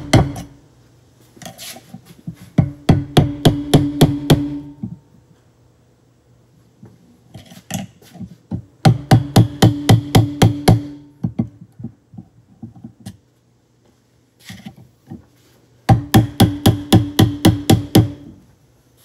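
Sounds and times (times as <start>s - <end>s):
hammer striking metal: 2.6s - 4.8s.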